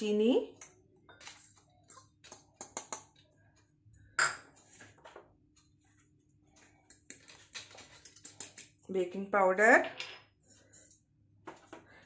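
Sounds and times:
spoon scraping ceramic bowls: 0.6 - 3.3, 5.8 - 8.9.

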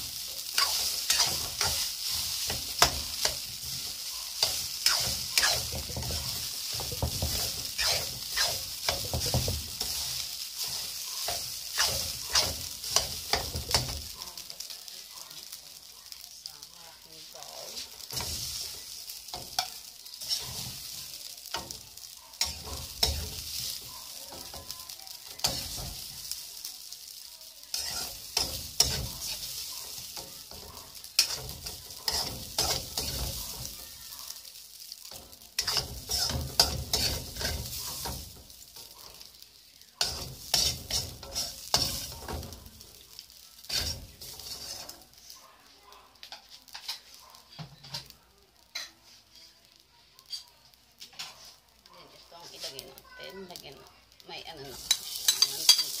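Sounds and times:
metal spoon scraping a wok: 0.0 - 14.4, 17.7 - 26.2, 27.7 - 33.8, 35.1 - 39.3, 40.0 - 42.6, 43.6 - 45.3, 46.3 - 47.2, 48.7 - 49.4, 51.1 - 51.7, 52.4 - 53.0, 54.6 - 56.0
hot pan sizzling: 0.0 - 56.0.

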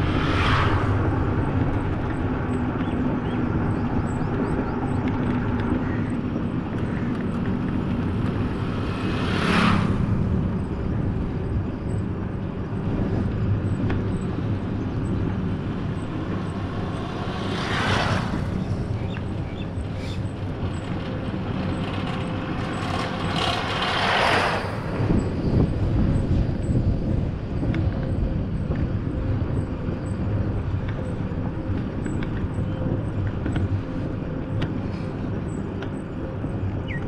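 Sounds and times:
rushes of noise: 0.0 - 4.1, 4.8 - 36.8
vehicle engine and road noise: 0.0 - 37.0.

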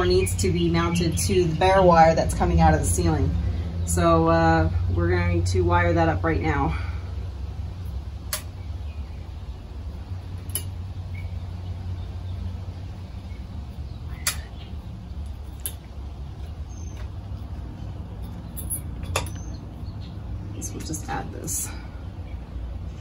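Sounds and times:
steady low rumble: 0.0 - 23.0
wires clicking on metal bracket: 18.2 - 19.5.

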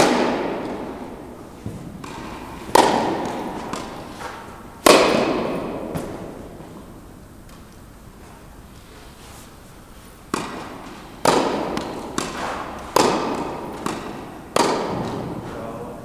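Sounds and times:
tennis ball struck by rackets: 0.0 - 6.8, 10.2 - 15.5.

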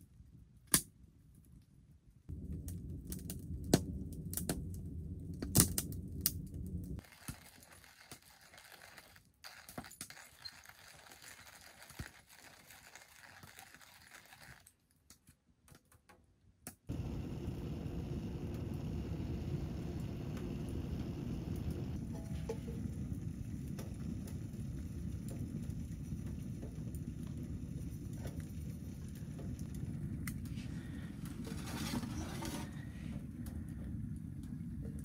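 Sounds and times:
wood crackling and popping: 0.2 - 16.1, 16.9 - 35.0
stove draft rumble: 2.3 - 7.2, 16.9 - 35.0.

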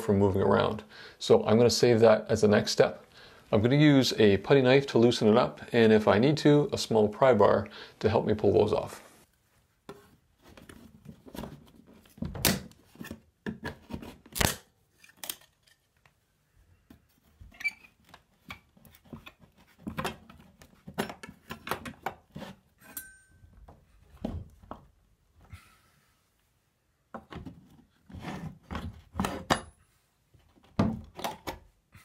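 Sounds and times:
putty knife scraping wood: 28.0 - 29.5.

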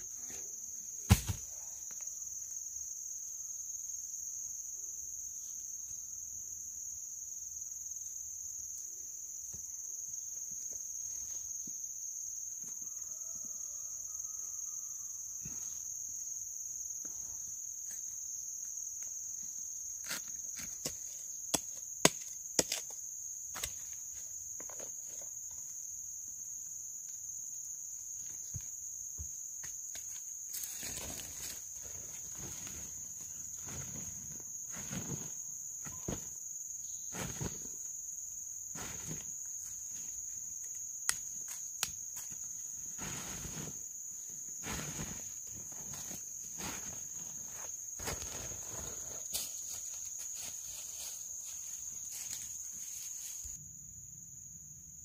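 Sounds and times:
insect chorus: 0.0 - 55.0
rustle: 29.6 - 53.6.

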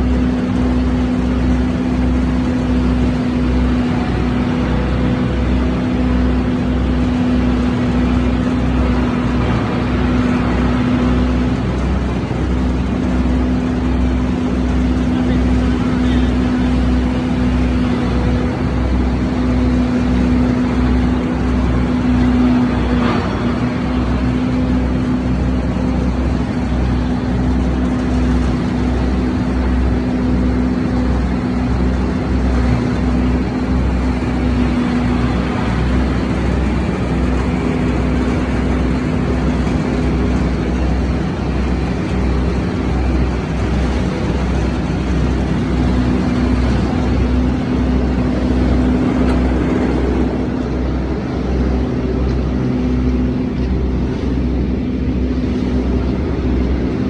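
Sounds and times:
grinder machine running: 0.0 - 57.0.

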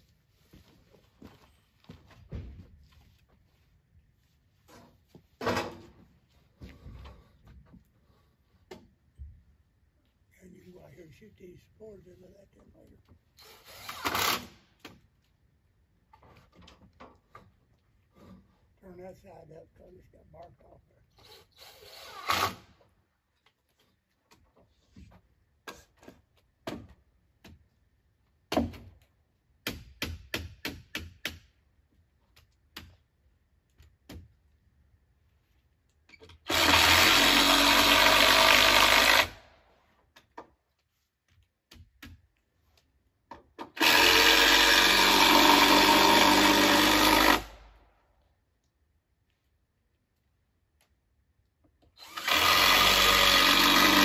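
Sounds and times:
power drill driving screws into wood: 13.4 - 14.6, 21.2 - 22.8, 36.3 - 39.5, 43.7 - 47.7, 51.9 - 54.0.

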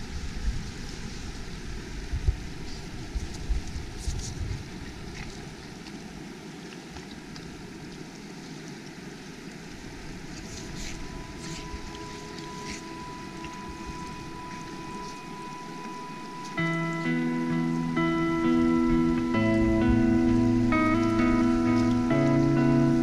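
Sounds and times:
water rushing over rocks: 0.0 - 23.0
faint held music tones: 5.2 - 23.0.

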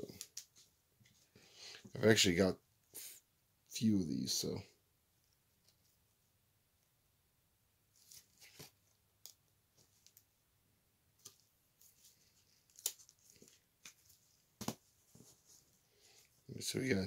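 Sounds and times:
trading cards flipped by hand: 8.0 - 10.3, 11.2 - 15.3.

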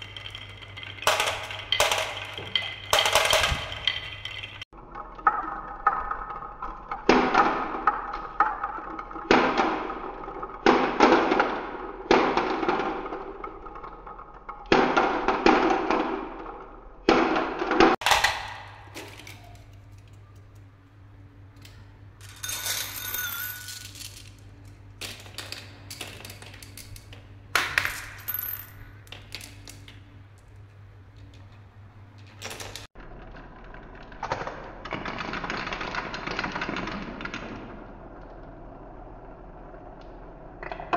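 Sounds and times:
marbles clattering: 0.0 - 9.3, 22.2 - 30.1
marbles rolling down wooden track: 0.0 - 16.6, 32.4 - 40.9.

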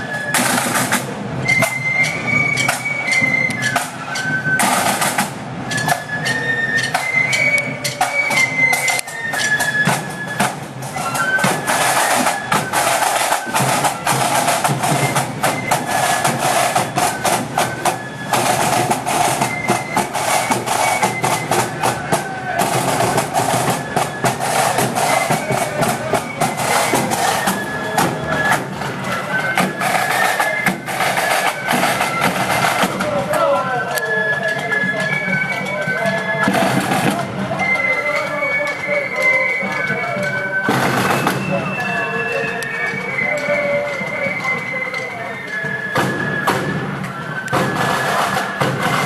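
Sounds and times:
flutes playing melody: 0.0 - 49.0
bass and side drums beating: 13.1 - 29.0.

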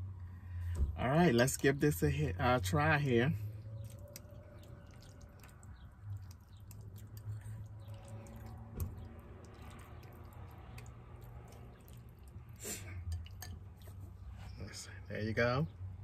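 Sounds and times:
person chewing: 3.7 - 14.0.

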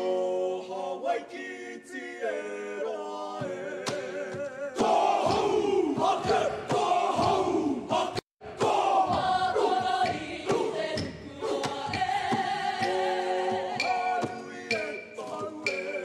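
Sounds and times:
group singing together: 0.0 - 16.0.

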